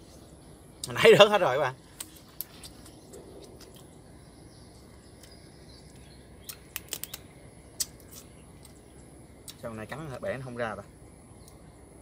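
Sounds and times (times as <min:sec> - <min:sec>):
faint bird chirps: 0:00.0 - 0:12.0
crab shell cracking: 0:06.4 - 0:08.8.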